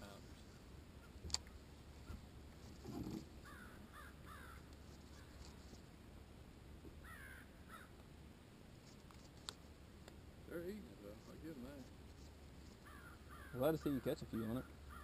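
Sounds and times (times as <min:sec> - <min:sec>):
faint bird calls: 0:02.0 - 0:05.7, 0:07.0 - 0:08.0, 0:12.6 - 0:15.0.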